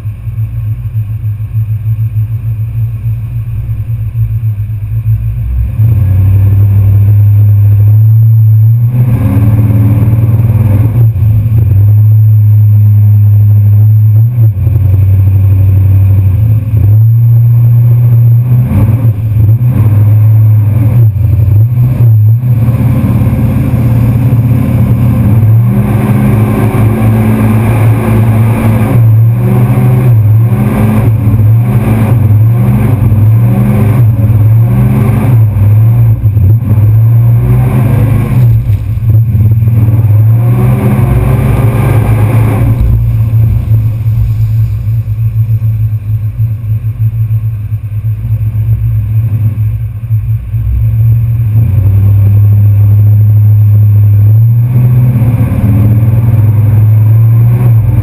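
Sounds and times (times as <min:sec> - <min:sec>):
truck engine revving: 0:03.0 - 0:58.0.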